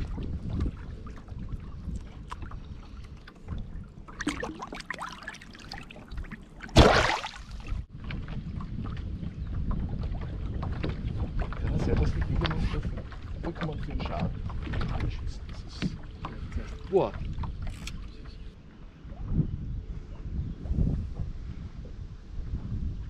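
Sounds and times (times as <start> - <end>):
wind rumble on microphone: 0.0 - 4.6, 7.4 - 23.0
hand splashing into water: 6.6 - 7.8.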